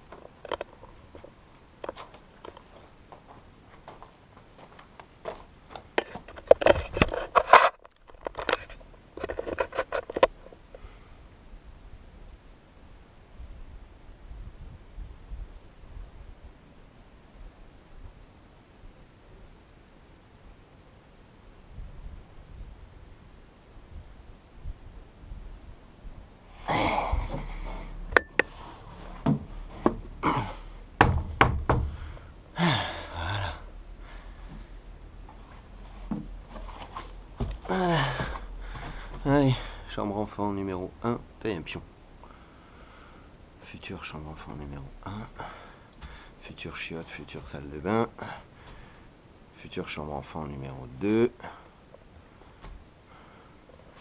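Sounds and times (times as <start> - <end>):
knocks and thuds on wooden boards: 31.0 - 32.1.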